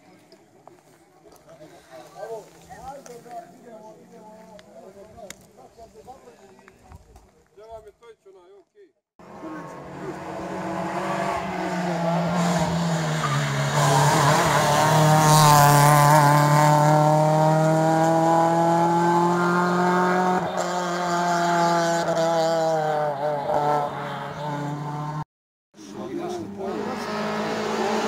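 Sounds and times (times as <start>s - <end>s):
rally car engine at high revs: 9.2s - 25.2s, 25.8s - 28.0s.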